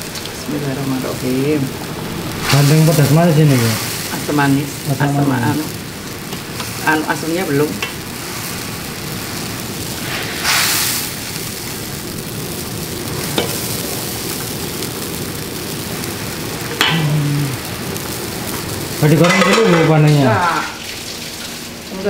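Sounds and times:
loud hiss: 0.0 - 20.6
fish sizzling in a wok: 0.0 - 22.0.

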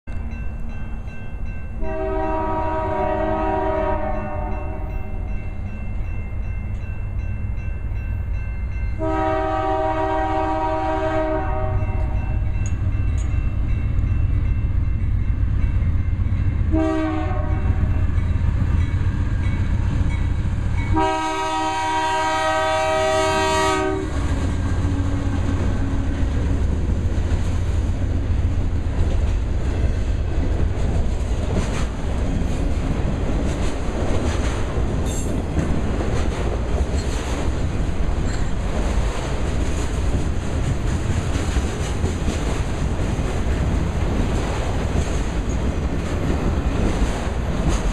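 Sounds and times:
locomotive air horn blasts: 1.8 - 5.2, 9.0 - 12.3, 16.7 - 18.0, 20.9 - 24.2.

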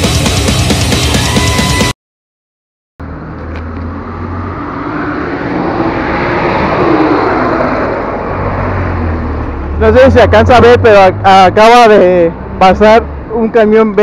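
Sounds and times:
truck passing: 3.0 - 14.0.

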